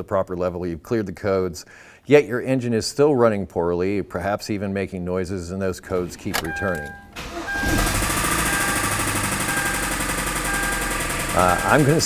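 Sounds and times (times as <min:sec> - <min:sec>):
car engine with mechanical rattle: 0:05.9 - 0:12.0.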